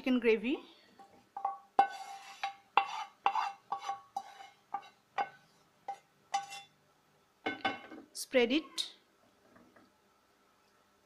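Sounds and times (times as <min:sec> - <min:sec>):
wooden spoon knocking metal pan: 0:01.4 - 0:06.5.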